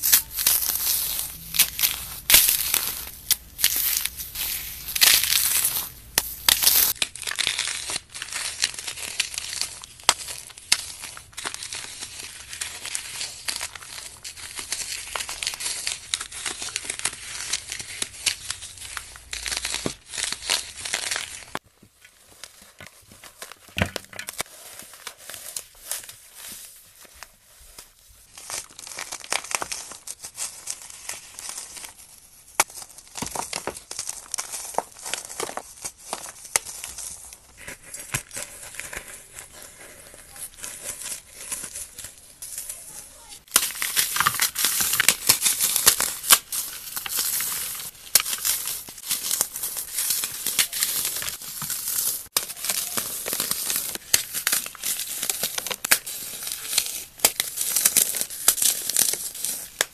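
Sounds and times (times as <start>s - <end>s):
floral foam crunching and crumbling: 0.0s - 59.9s.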